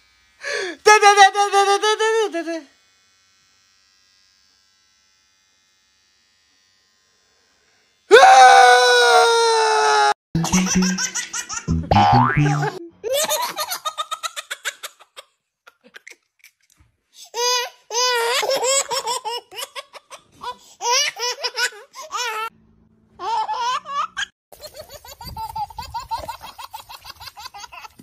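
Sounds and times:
baby giggling: 10.4s - 16.2s.

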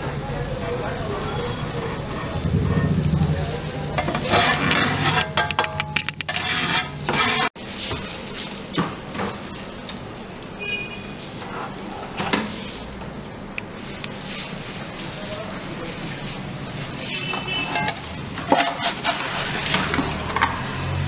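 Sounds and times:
sandwich sizzling on grill: 0.0s - 5.6s, 6.2s - 21.0s
kitchen clicks and clatter: 3.9s - 7.5s, 17.3s - 20.6s.

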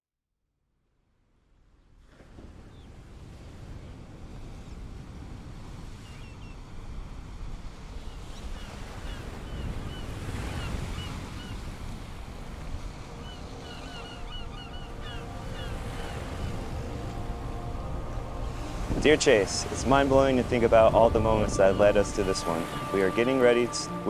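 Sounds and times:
ocean surf: 2.0s - 24.0s
wind rushing: 8.8s - 24.0s.

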